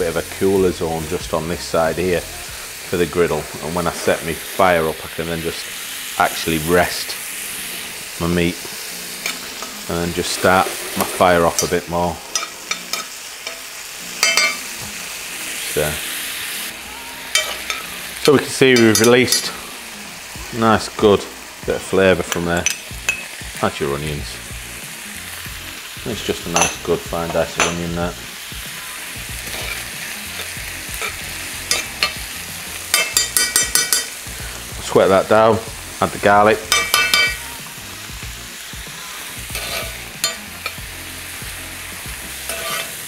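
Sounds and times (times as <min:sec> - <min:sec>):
meat sizzling in a pan: 0:00.0 - 0:43.0
metal spoon scraping a pan: 0:06.0 - 0:15.2, 0:17.3 - 0:20.0, 0:22.1 - 0:23.4, 0:29.3 - 0:34.7, 0:36.6 - 0:37.5, 0:39.2 - 0:40.9, 0:41.9 - 0:43.0
metal spoon clicking on pan: 0:11.6 - 0:14.6, 0:17.3 - 0:17.9, 0:31.0 - 0:32.2, 0:32.9 - 0:34.2, 0:36.7 - 0:37.4, 0:39.6 - 0:40.8.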